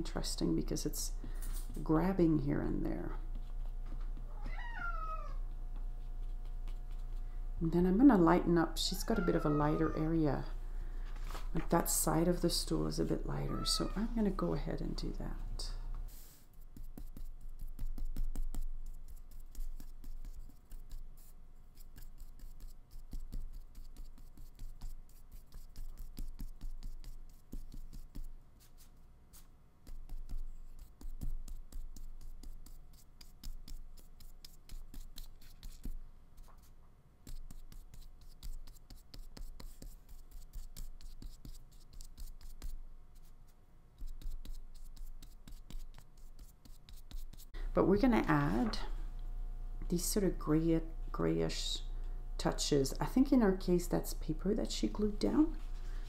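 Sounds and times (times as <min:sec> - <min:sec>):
paintbrush scratching on paper: 0:06.0 - 0:07.3, 0:16.1 - 0:47.5.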